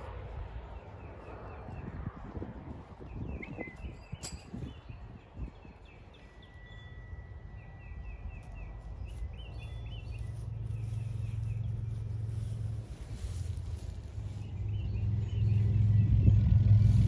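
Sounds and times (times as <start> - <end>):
birds chirping: 0.0 - 17.0
low steady rumble: 0.0 - 17.0.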